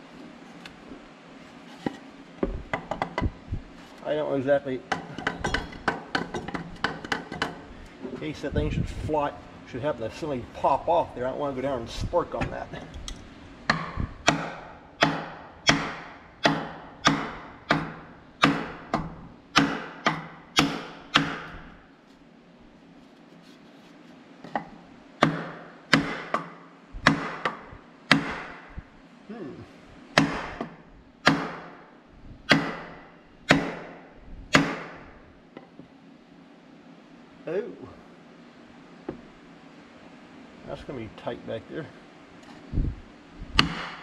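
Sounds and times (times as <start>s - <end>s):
sledgehammer striking wood block: 13.7s - 21.6s, 25.2s - 28.7s, 30.2s - 31.8s, 32.5s - 35.0s, 43.6s - 44.0s.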